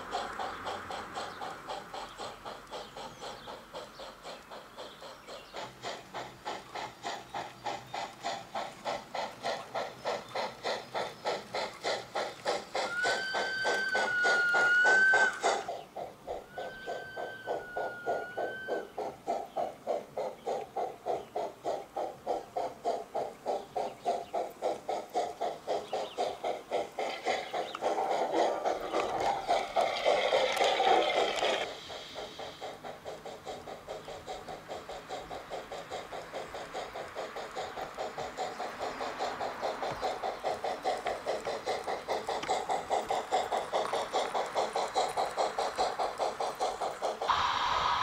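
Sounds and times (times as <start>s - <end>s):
high steam hiss: 0.0s - 48.0s
steam locomotive chuffing: 0.0s - 48.0s
steam whistle blowing: 12.9s - 15.4s, 16.5s - 18.9s, 47.3s - 48.0s.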